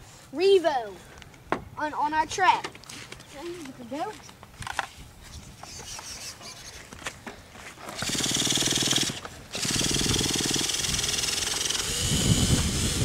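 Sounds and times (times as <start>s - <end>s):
nitro engine starter cranking: 7.9s - 13.0s.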